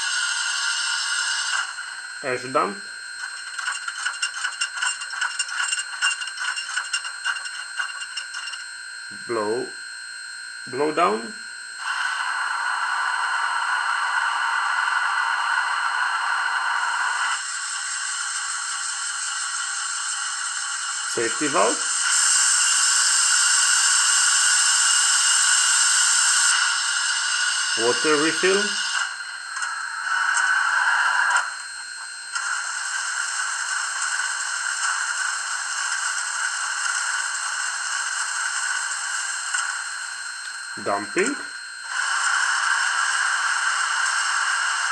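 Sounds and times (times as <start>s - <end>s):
steam hissing: 0.0s - 2.6s, 11.8s - 31.4s, 32.3s - 39.9s, 40.8s - 44.9s.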